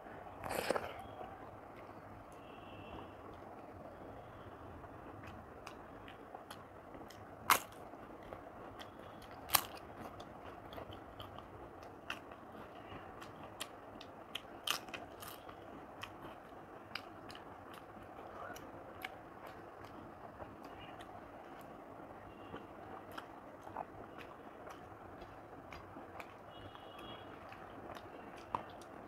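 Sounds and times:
chewing crackles: 0:00.4 - 0:02.5, 0:05.1 - 0:29.0.

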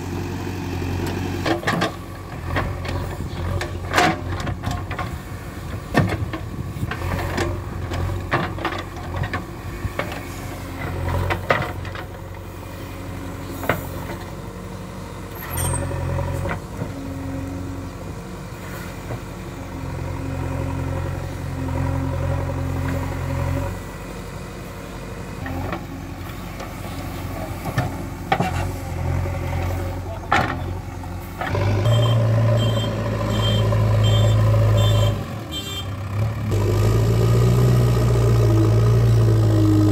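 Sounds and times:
diesel engine running: 0:00.0 - 0:39.9
high reversing beep: 0:31.8 - 0:35.2.

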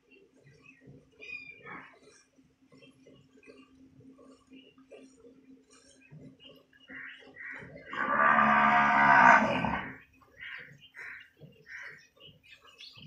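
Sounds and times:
cow mooing: 0:07.9 - 0:10.0.

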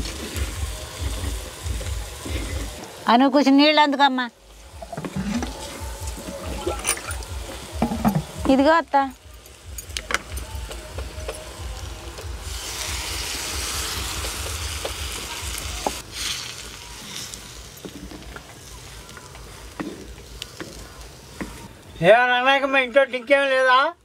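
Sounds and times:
curry sizzling in a clay pot: 0:00.0 - 0:24.0.

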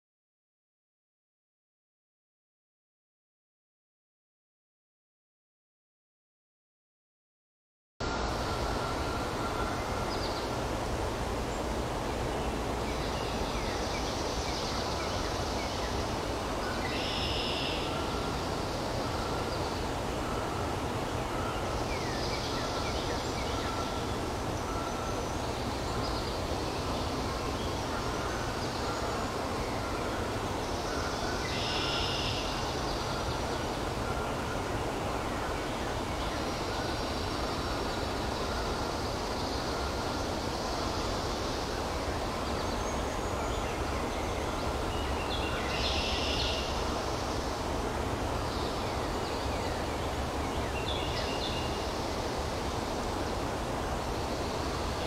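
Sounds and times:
steady rushing background noise: 0:08.0 - 0:55.0
small birds singing: 0:35.3 - 0:52.5.

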